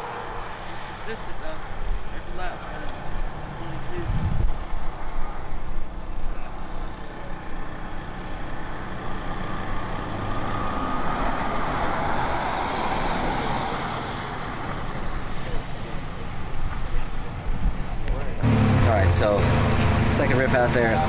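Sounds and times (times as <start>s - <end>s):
race truck engine passing: 2.5s - 5.0s, 18.4s - 21.0s.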